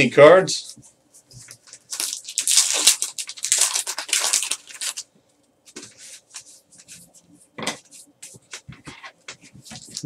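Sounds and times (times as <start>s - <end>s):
card pack wrapper crinkling: 1.5s - 5.1s.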